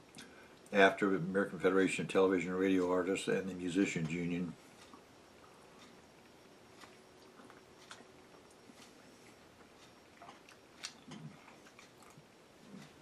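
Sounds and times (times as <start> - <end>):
quiet chewing: 3.9 - 13.0.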